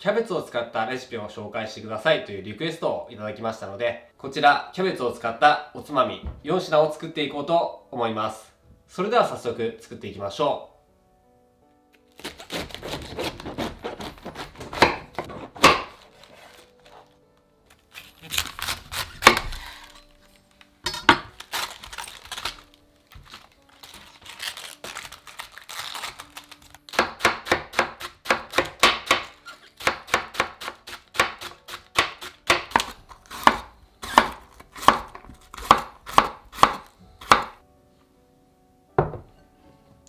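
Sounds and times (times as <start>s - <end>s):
knife chopping cabbage on wood board: 12.2s - 16.6s, 18.3s - 19.9s, 26.9s - 37.6s
single knock: 39.0s - 39.3s.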